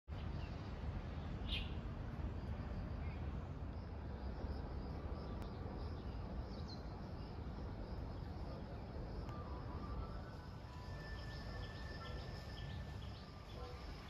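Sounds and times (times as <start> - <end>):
insect buzz: 9.1 - 14.0
bird chirps: 10.8 - 13.8.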